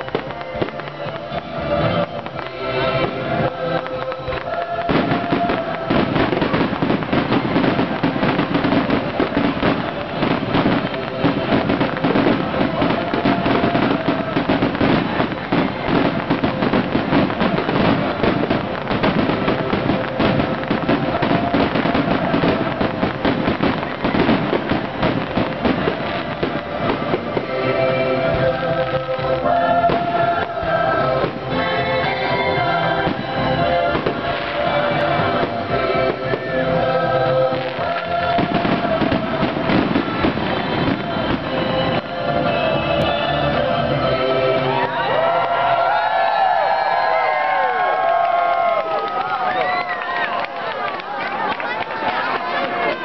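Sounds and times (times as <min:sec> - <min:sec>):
fireworks bursting and crackling: 0:00.0 - 0:44.1, 0:44.7 - 0:53.0.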